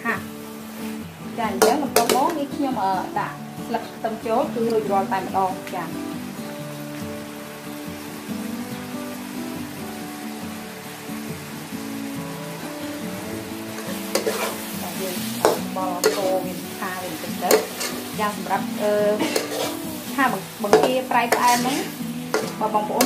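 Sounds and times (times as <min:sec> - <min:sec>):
sauce sizzling in a pan: 0:00.0 - 0:23.0
metal ladle scraping a wok: 0:13.8 - 0:23.0.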